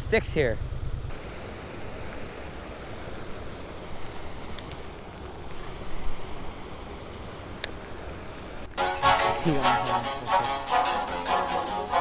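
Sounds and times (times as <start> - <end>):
wind buffeting microphone: 0.0 - 8.7
faint clicks: 4.5 - 5.6.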